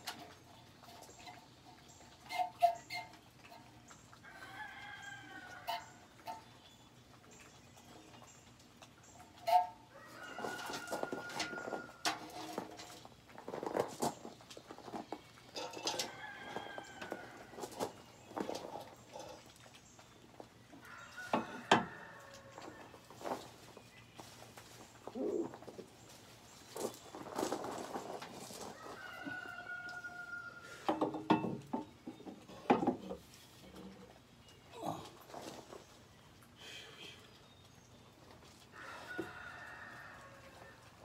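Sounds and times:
metal exhaust pipes clanking: 15.5 - 16.1
rooster crowing: 28.8 - 30.8, 38.8 - 40.8
metal knocks and clanks: 30.9 - 33.2.

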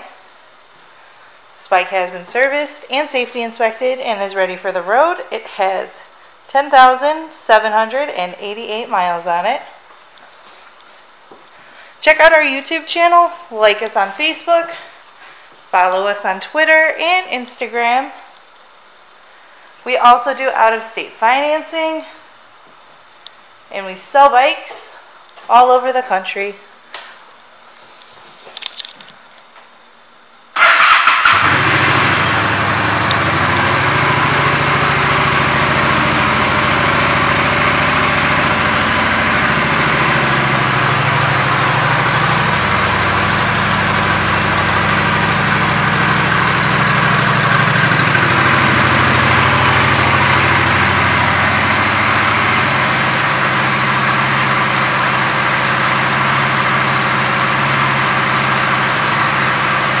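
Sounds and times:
motorcycle engine starting and idling: 30.6 - 60.0.

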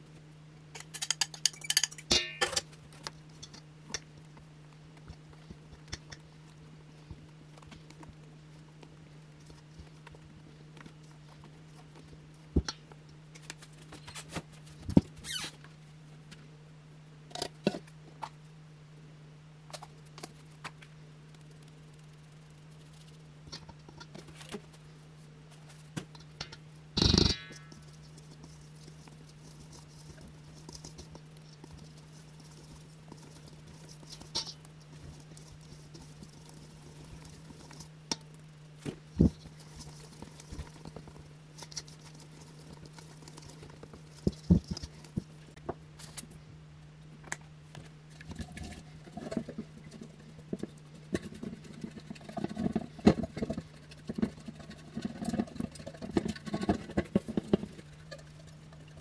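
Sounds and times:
steady low hum: 0.0 - 59.0
utensils tapping steel bowl: 0.8 - 2.6, 26.4 - 27.9.

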